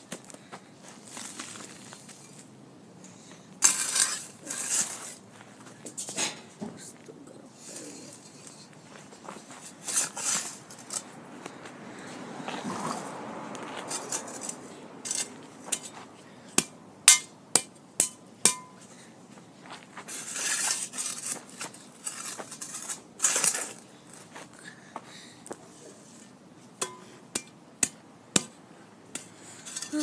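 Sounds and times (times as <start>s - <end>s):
spade scraping swishes: 3.6s - 17.2s, 19.6s - 24.4s, 29.2s - 30.0s
metal spade clinking on dirt: 13.9s - 18.9s, 26.8s - 30.0s.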